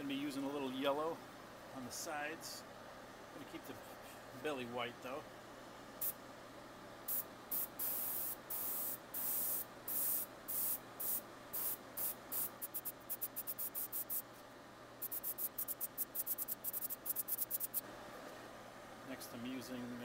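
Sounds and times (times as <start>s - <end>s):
airbrush spraying hiss: 7.1s - 14.3s, 15.0s - 17.8s.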